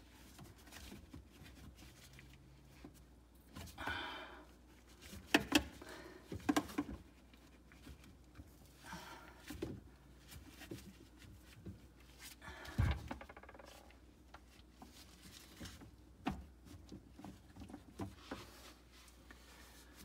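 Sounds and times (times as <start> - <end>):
plastic fittings knocking and clicking: 5.3 - 5.7.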